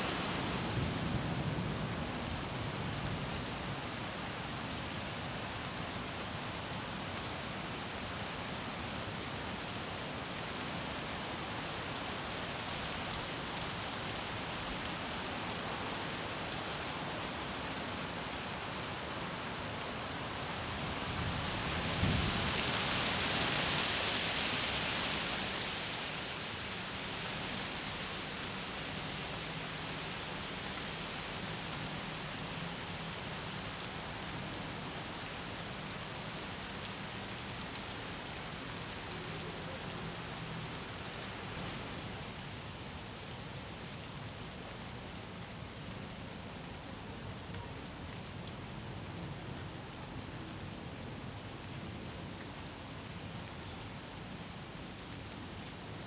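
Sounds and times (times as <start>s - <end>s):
wind moving branches: 0.0s - 46.9s
rain falling on leafy trees: 0.0s - 56.0s.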